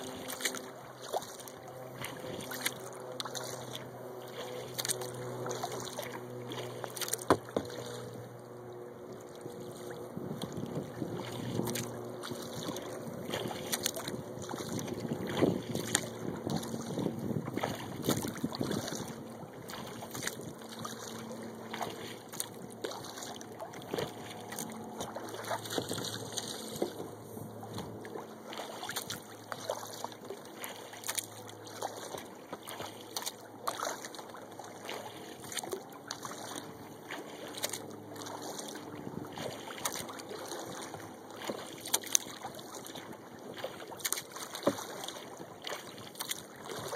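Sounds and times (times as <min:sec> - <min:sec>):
splashes and knocks against hull: 0:00.0 - 0:46.9
water lapping and dripping: 0:00.0 - 0:46.9.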